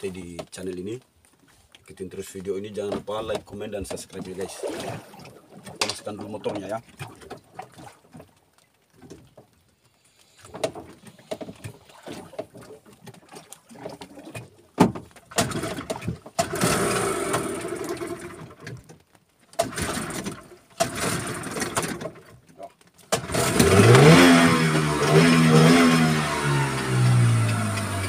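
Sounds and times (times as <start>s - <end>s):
outboard motor running: 10.4s - 18.8s, 19.6s - 28.0s.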